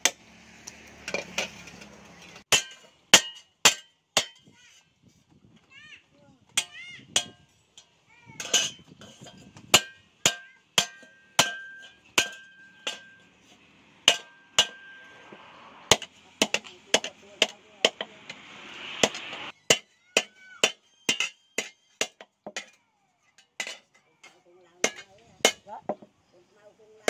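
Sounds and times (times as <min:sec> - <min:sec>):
hammer striking steel on anvil: 0:08.4 - 0:13.4, 0:14.0 - 0:22.8
hiss: 0:18.0 - 0:19.5.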